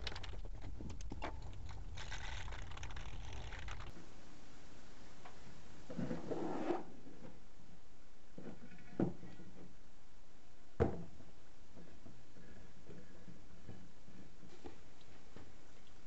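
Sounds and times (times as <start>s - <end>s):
paper and cardboard rustling: 0.0s - 4.0s.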